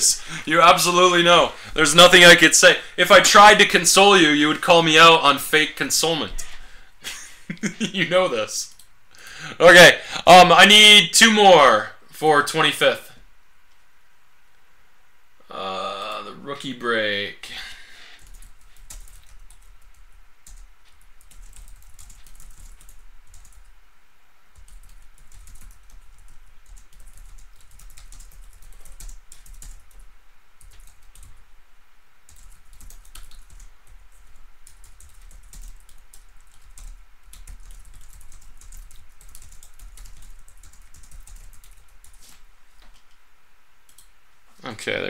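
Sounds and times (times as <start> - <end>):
typing on a keyboard: 18.2 - 23.7, 24.6 - 30.0, 30.6 - 31.4, 32.3 - 42.3.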